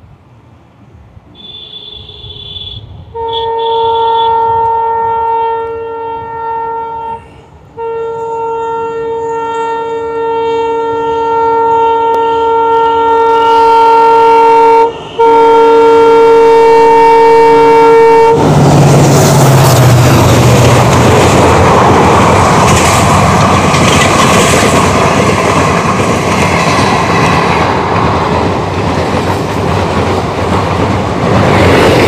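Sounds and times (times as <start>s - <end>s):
locomotive horn blasts: 1.3s - 18.4s
locomotive engine and wheel noise: 17.5s - 32.0s.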